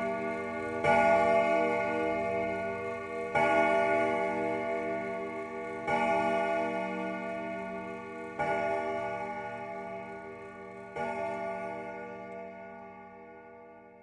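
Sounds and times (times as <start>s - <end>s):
slow bell-like chimes: 0.0s - 14.0s.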